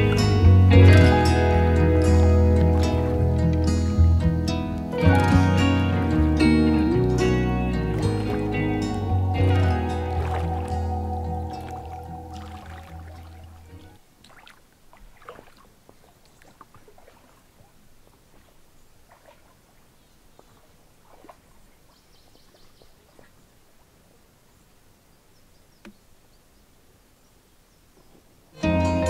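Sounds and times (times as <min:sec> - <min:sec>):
high trill: 0:05.0 - 0:13.8.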